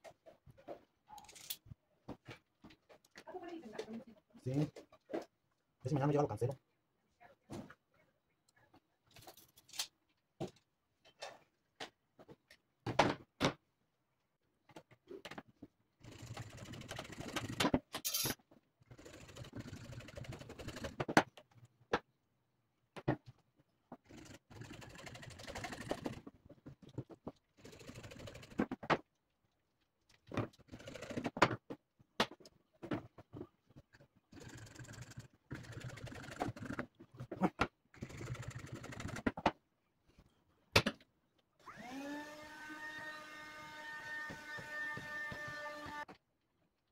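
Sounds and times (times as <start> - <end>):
plastic pipes clicking and scraping: 25.5 - 34.6.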